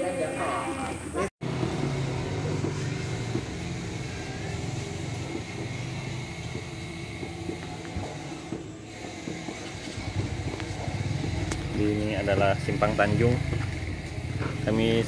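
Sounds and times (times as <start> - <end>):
motorcycle engine idling: 1.4 - 15.0.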